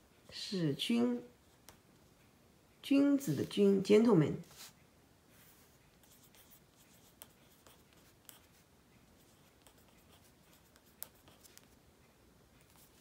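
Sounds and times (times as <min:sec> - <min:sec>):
marker pen scratching on paper: 0:04.4 - 0:11.8, 0:12.6 - 0:13.0.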